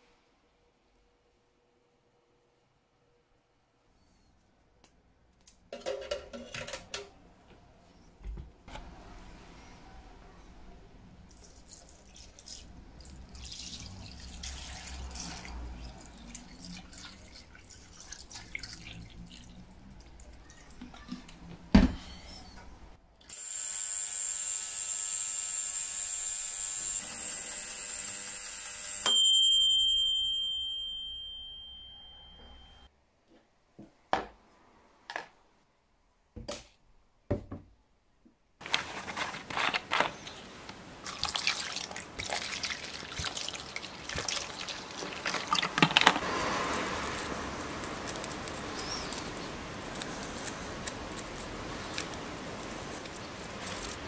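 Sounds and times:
brush scrubbing in soapy water: 0:11.3 - 0:19.5, 0:41.0 - 0:54.0
ringing tone: 0:28.9 - 0:32.9.

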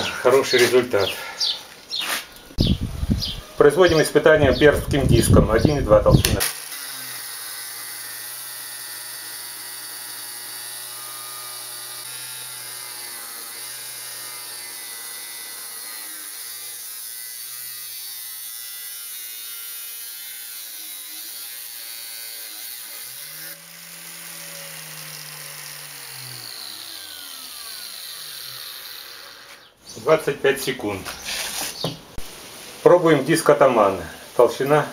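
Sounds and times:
angle grinder cutting steel: 0:06.1 - 0:29.7.

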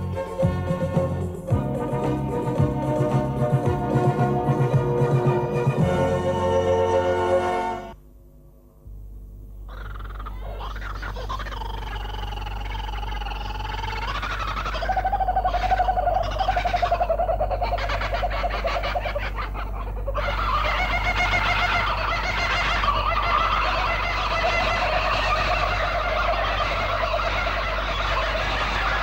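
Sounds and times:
kookaburras laughing: 0:09.7 - 0:29.0.

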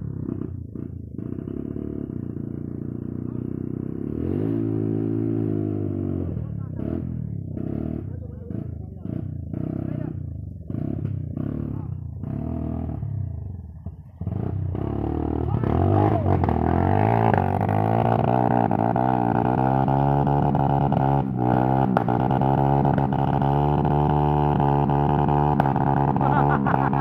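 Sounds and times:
trail bike engine revving: 0:00.0 - 0:27.0.

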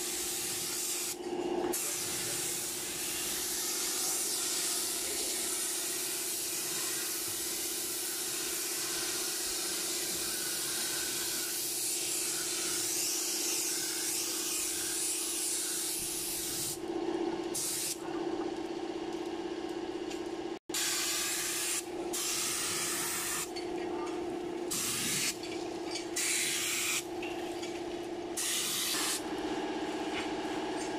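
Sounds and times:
steady machine hum: 0:16.8 - 0:30.9
spray gun hissing: 0:17.6 - 0:18.0, 0:20.8 - 0:23.5, 0:24.7 - 0:25.4, 0:26.2 - 0:27.0, 0:28.4 - 0:29.2.

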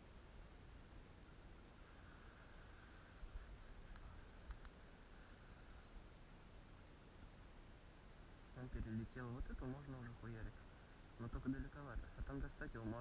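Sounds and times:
songbird whistles: 0:00.0 - 0:08.7
faint ticks: 0:00.0 - 0:09.8
descending bird trill: 0:00.0 - 0:10.4.

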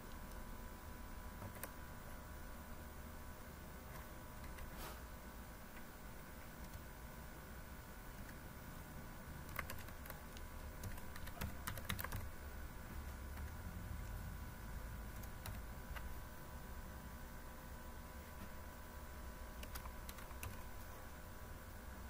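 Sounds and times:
faint steady hum: 0:00.0 - 0:22.0
computer keyboard typing: 0:01.4 - 0:01.8, 0:03.9 - 0:04.7, 0:09.4 - 0:12.4, 0:15.1 - 0:16.1, 0:19.6 - 0:20.9.

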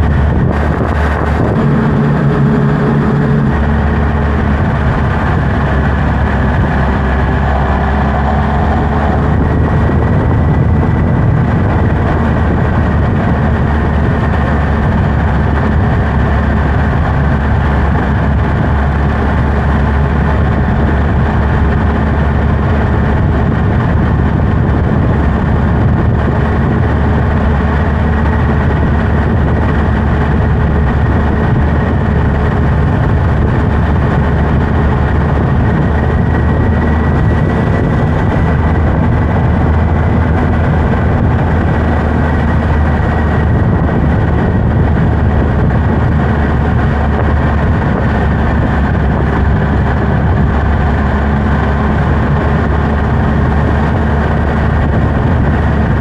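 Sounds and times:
thin steady whine: 0:00.0 - 0:16.8
motorcycle engine running: 0:00.0 - 0:56.0.

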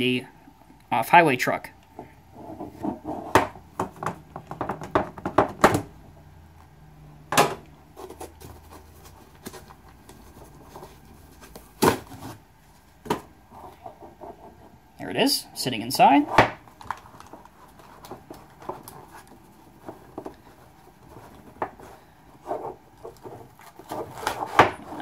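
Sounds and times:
hands handling packaging: 0:07.9 - 0:13.8, 0:16.6 - 0:25.0.

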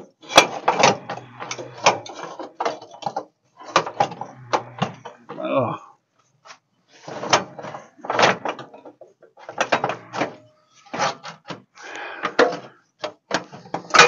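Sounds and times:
metal tubes scraping and clunking: 0:00.0 - 0:05.4, 0:06.2 - 0:14.0.

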